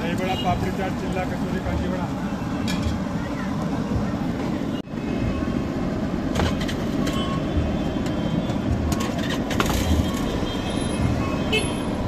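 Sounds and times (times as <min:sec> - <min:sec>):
street traffic rumble: 0:00.0 - 0:12.0.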